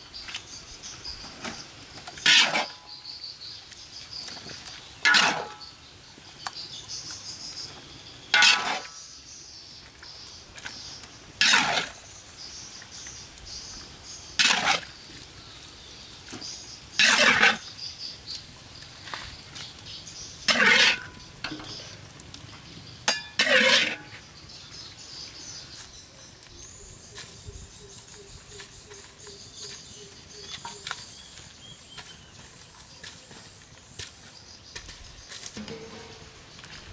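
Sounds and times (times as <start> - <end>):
metal spatula scraping steel wok: 2.2 - 2.8, 5.0 - 5.6, 8.3 - 9.0, 11.4 - 12.0, 14.4 - 14.9, 17.0 - 17.6, 20.5 - 21.8, 23.1 - 24.2, 35.6 - 36.8.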